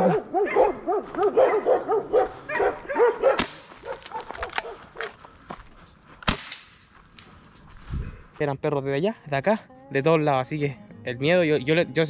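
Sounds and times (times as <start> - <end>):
dogs barking: 0.0 - 5.1
footsteps on gravel: 1.0 - 1.4, 3.6 - 6.2.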